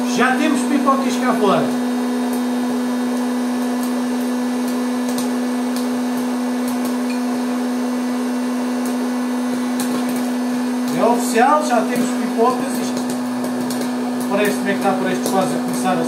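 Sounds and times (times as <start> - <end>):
popcorn maker fan humming: 0.0 - 16.0
corn kernels popping: 3.6 - 7.4, 9.7 - 16.0.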